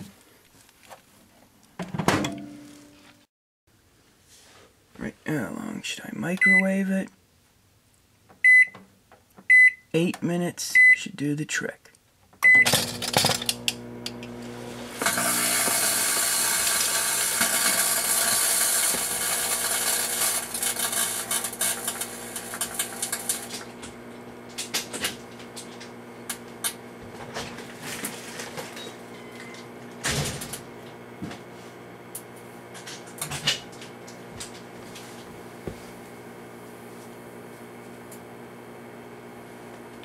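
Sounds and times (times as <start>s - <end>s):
microwave oven humming: 12.4s - 40.0s
loud hissing crackle: 14.9s - 23.8s.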